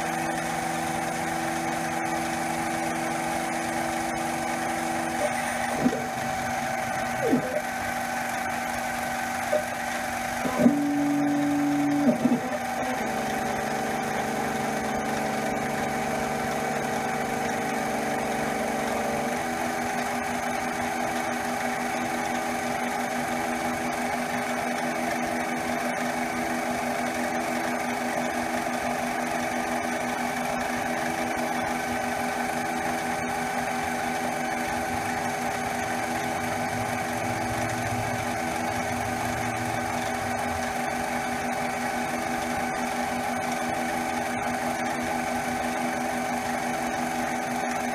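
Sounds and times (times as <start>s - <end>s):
stepper motors humming: 0.0s - 21.4s
lathe spindle motor whining: 0.0s - 47.9s.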